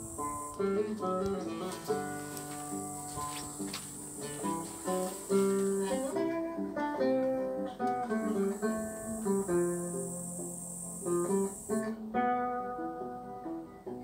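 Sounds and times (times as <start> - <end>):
plucked guitar accompaniment: 0.0 - 14.0
plucked guitar melody: 0.0 - 14.0.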